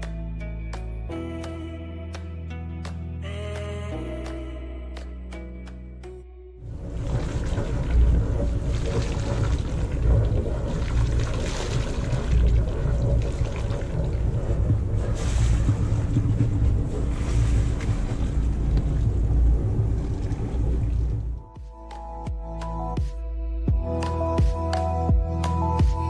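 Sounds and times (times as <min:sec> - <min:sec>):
wind buffeting microphone: 0:06.7 - 0:21.3.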